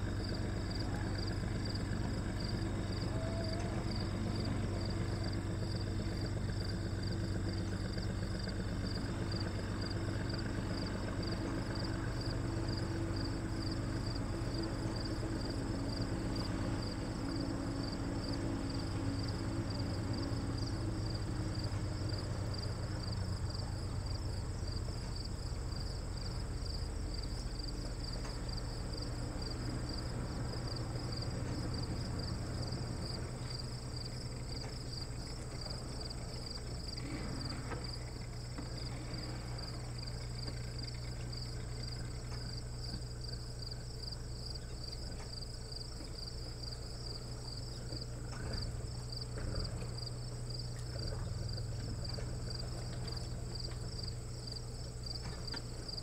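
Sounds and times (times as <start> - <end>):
insects trilling: 0.0 - 56.0.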